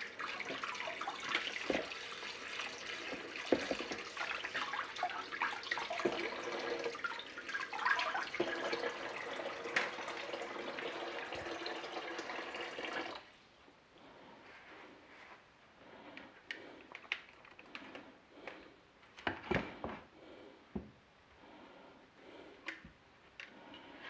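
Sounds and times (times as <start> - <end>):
tap running into bowl of water: 0.4 - 7.0, 7.7 - 13.2.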